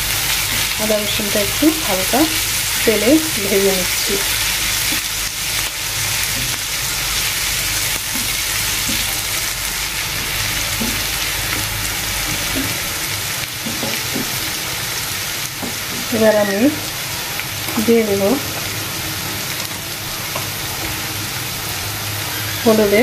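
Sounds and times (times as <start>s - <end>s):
oil sizzling in a frying pan: 0.0s - 23.0s
spatula stirring: 4.4s - 16.8s.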